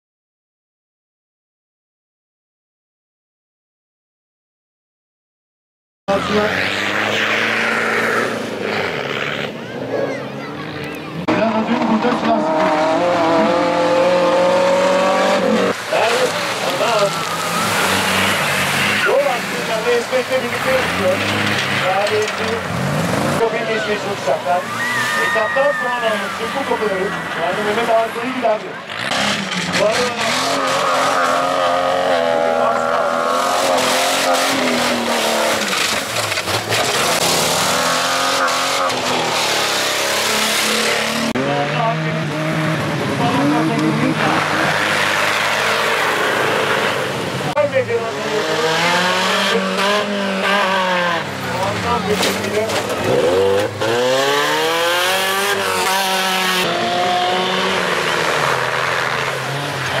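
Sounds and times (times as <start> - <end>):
engines revving hard: 6.1 - 60.0
tyre and terrain noise: 6.1 - 60.0
truck engine running through mud: 14.7 - 25.2.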